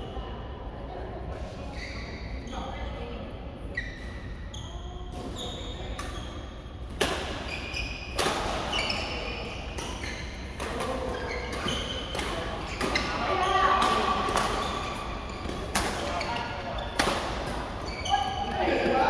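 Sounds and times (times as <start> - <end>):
shoes squeaking on court: 1.7 - 2.8, 3.7 - 19.0
rackets hitting shuttlecock: 9.7 - 17.8.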